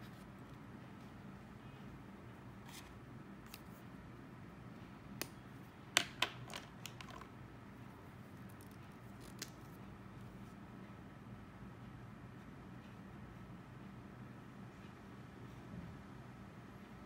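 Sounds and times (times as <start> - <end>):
faint room hum: 0.0 - 17.0
plastic pen clicks and taps: 6.0 - 7.3.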